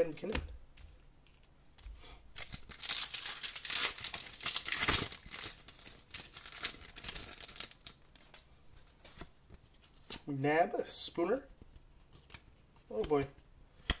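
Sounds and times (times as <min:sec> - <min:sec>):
cards rustling and clicking: 0:00.2 - 0:10.3
foil wrapper crinkling and tearing: 0:02.4 - 0:08.4.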